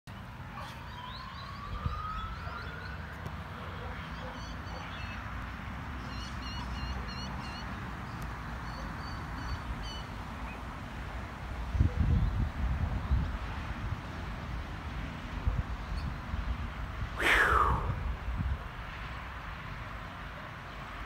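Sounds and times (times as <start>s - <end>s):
distant police siren wailing: 0.7s - 3.6s.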